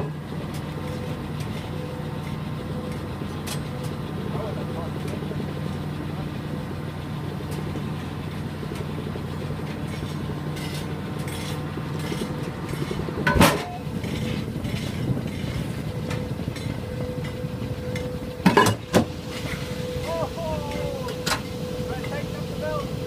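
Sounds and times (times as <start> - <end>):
plant machinery drone: 0.0 - 23.0
loud metallic clang: 13.2 - 13.8
steel plate clanging on magnet: 13.2 - 13.8.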